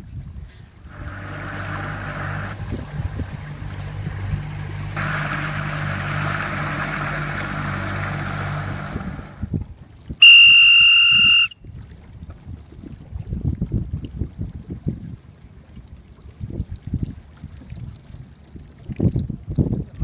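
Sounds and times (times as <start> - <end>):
wind: 0.0 - 20.0
boat engine humming: 0.6 - 11.6
water rushing: 0.8 - 11.6
loud whistle blast: 10.2 - 11.6.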